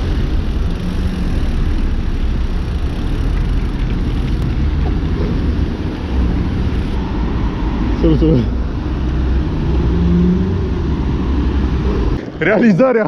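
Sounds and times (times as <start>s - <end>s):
city traffic rumble: 0.0s - 13.0s.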